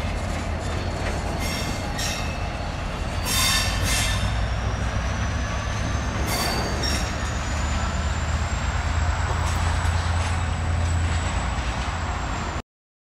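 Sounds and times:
train wheels rumbling on rail: 0.0 - 12.6
high wheel squeal: 0.6 - 12.6.

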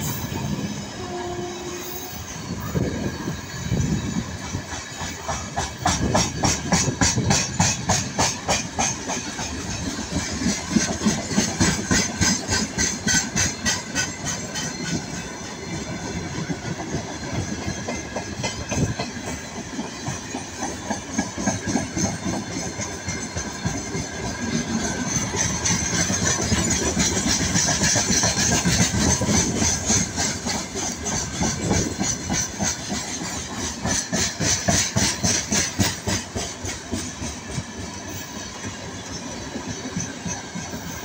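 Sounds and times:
train wheels clattering over rail joints: 2.2 - 41.0.

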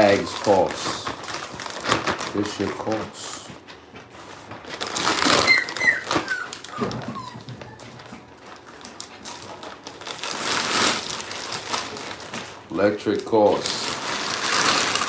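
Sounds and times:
plastic bags crinkling: 0.0 - 3.5, 4.6 - 15.0
dog whimpering: 5.1 - 8.5.

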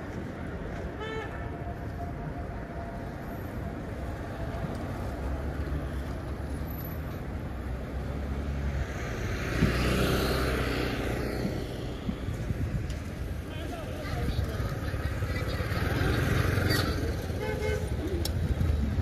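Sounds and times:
low rumble of traffic: 0.0 - 19.0.

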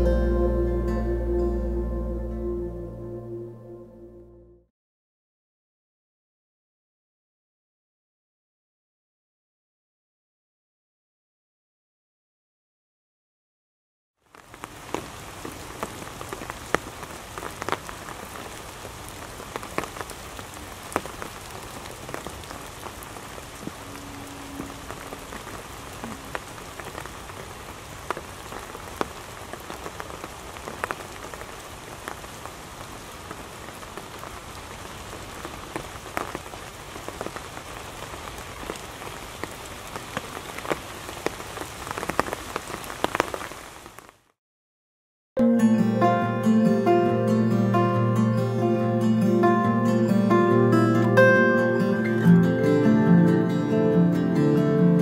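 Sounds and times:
loud single raindrops: 14.2 - 44.3
steady rain patter: 14.2 - 44.4, 45.6 - 55.0.

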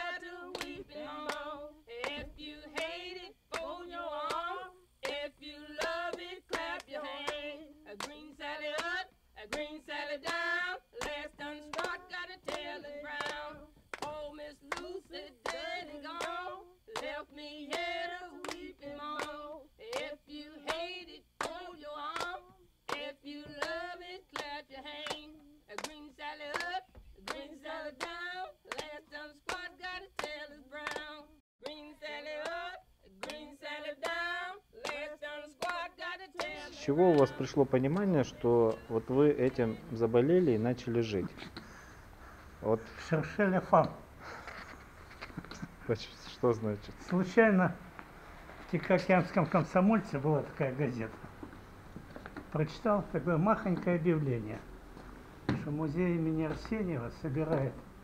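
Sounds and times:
hand-clap beat: 0.0 - 39.8, 56.4 - 56.8
woman singing: 0.0 - 39.9.

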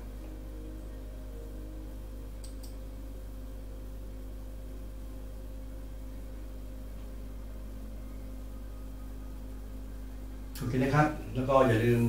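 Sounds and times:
faint steady tones: 0.0 - 12.0
steady low hum: 0.0 - 12.0
computer mouse clicks: 2.4 - 2.8.

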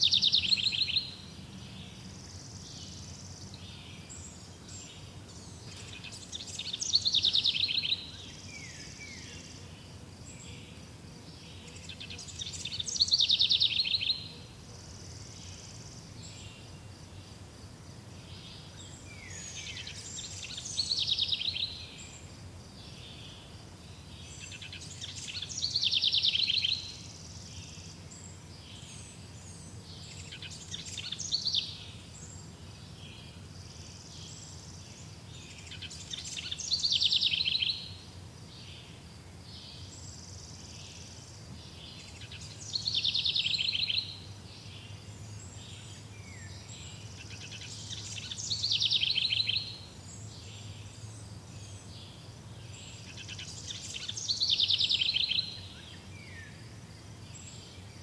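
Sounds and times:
songbird trilling: 0.0 - 1.2, 5.7 - 9.4, 11.8 - 14.4, 35.5 - 38.0, 41.9 - 44.2, 45.7 - 49.9, 53.0 - 55.8.

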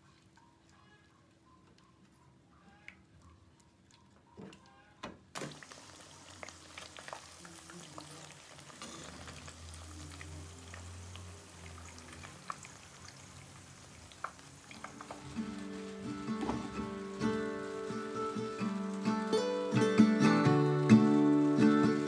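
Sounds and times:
cutlets frying in hot oil: 5.4 - 19.7.

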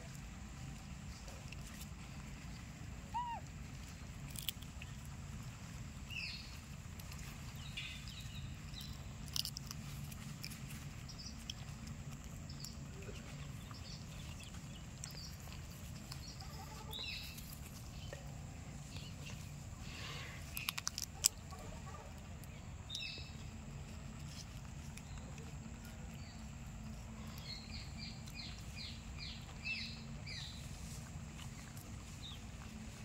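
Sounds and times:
steady low hum: 0.0 - 33.0
monkey chewing food: 3.2 - 5.8, 6.6 - 19.6, 20.4 - 21.6.

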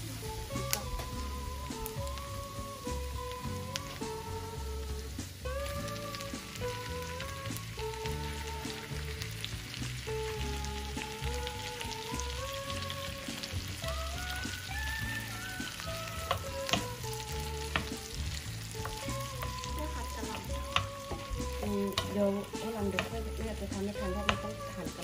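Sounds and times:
background music with bass beat: 0.0 - 25.0
shrimp sizzling in oil: 0.0 - 25.0
wooden spoon knocking on pan: 15.6 - 25.0.

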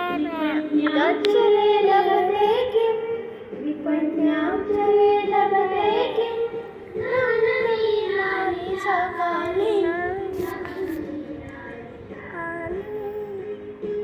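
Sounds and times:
toddler chanting in sing-song voice: 0.0 - 3.0, 7.2 - 11.2, 12.2 - 13.6.

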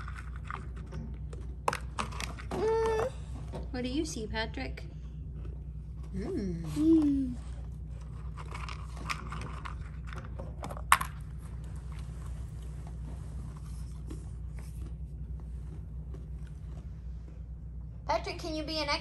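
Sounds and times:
child chewing crunchy snack: 0.0 - 3.0, 7.8 - 12.8, 13.4 - 17.8
low hum: 0.0 - 19.0.

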